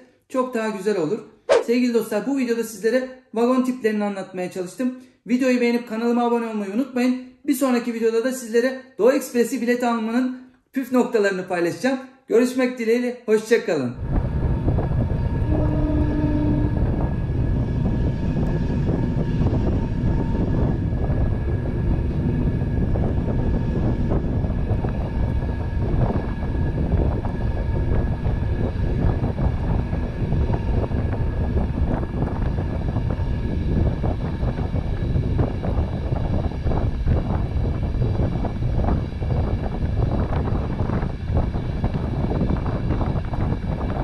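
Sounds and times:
train carriage rumble: 14.0s - 44.0s.

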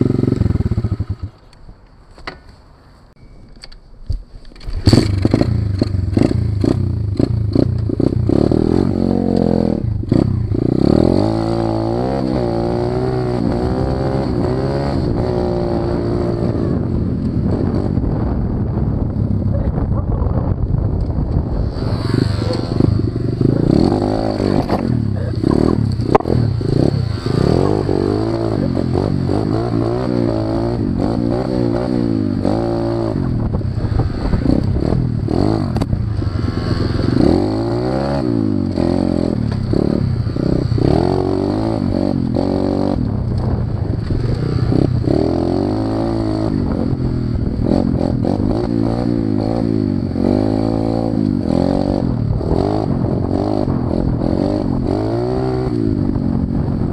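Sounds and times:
motorbike engine revving: 0.0s - 1.4s, 4.6s - 18.7s, 21.4s - 56.9s
clattering on rough trail: 21.0s - 29.9s.

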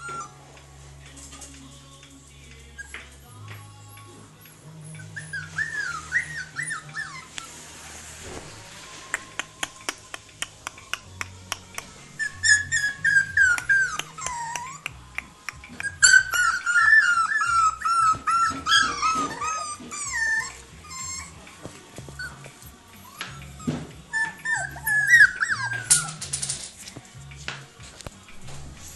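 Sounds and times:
puppies whining and whimpering: 0.0s - 0.6s, 2.6s - 26.7s.

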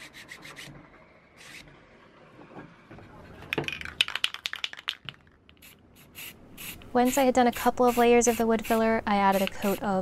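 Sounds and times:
sharp clicks and rattling taps: 3.5s - 5.7s.

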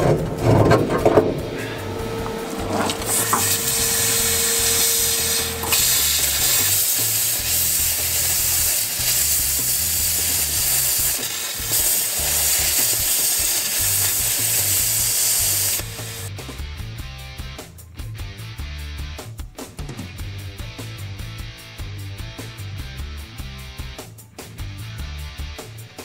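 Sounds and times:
low rumble: 0.0s - 6.8s
plasma cutter arc hissing: 1.5s - 16.3s.

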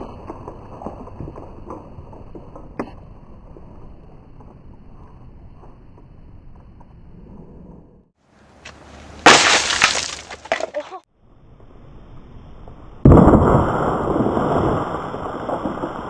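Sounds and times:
crackling debris: 0.0s - 6.9s, 8.6s - 11.1s, 13.0s - 16.0s
deep explosive blast: 13.0s - 16.0s.

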